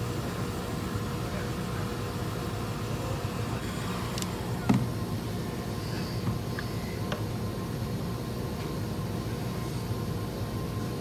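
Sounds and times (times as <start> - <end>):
heat gun blower: 2.8 - 7.0.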